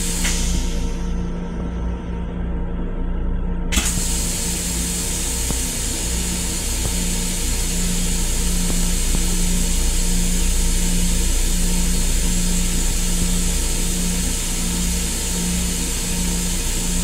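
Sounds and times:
railcar rumble and hum: 0.0 - 17.0
steady hiss: 3.8 - 17.0.

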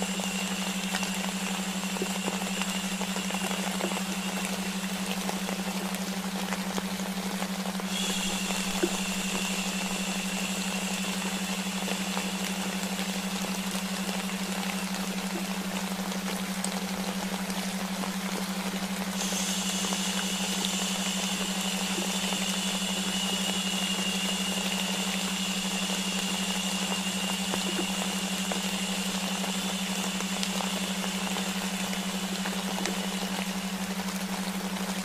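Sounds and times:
rain and white noise hiss: 0.0 - 35.0
steady low tone: 0.0 - 35.0
higher brighter hiss: 7.8 - 15.8.

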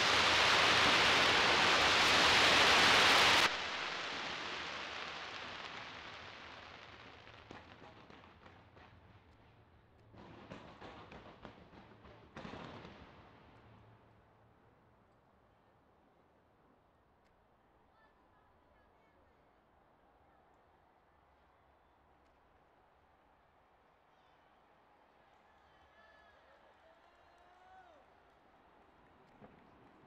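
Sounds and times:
fireworks crackling and popping: 0.0 - 15.4, 24.2 - 30.0.

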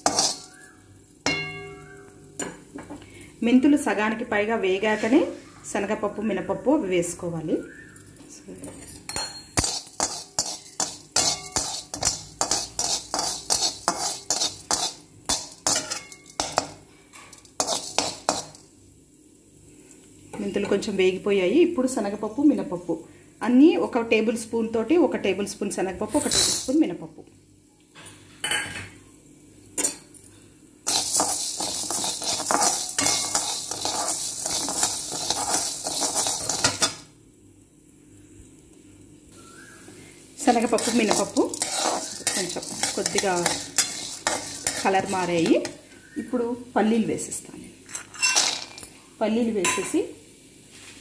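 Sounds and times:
metal spatula scraping metal pan: 0.0 - 0.7, 9.6 - 16.7, 17.4 - 18.6, 30.9 - 37.0, 40.4 - 45.8.

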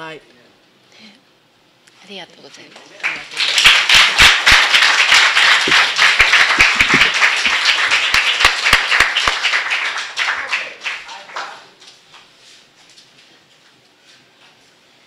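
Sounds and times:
congregation applauding: 3.0 - 11.9
sharp claps close to microphone: 3.0 - 12.3.

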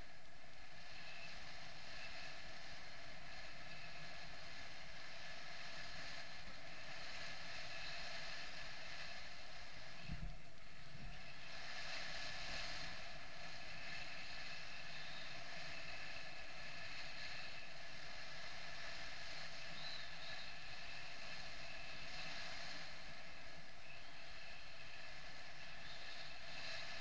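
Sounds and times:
faint whistle: 14.5 - 16.1, 19.5 - 22.0, 23.8 - 24.9, 25.6 - 26.8.

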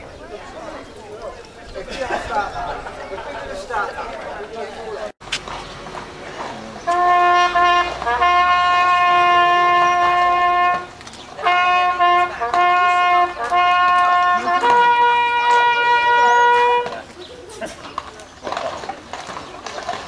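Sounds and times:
coach horn blasts: 6.8 - 17.0.

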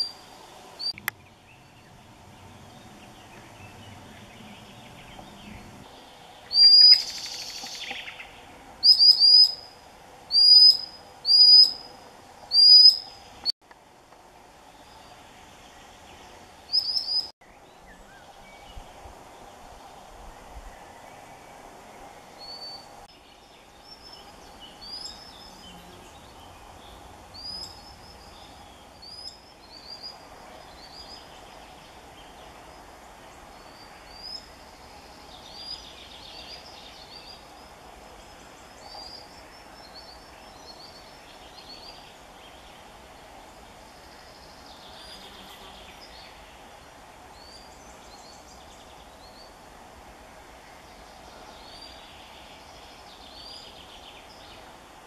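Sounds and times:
sandpiper piercing calls: 6.5 - 7.8, 8.8 - 9.7, 10.3 - 11.8, 12.5 - 13.0.

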